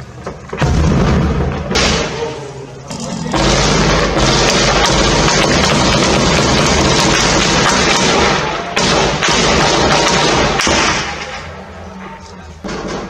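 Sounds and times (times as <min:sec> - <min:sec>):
heavy machine-gun fire: 0:00.6 - 0:02.4, 0:03.2 - 0:11.4, 0:12.6 - 0:13.0.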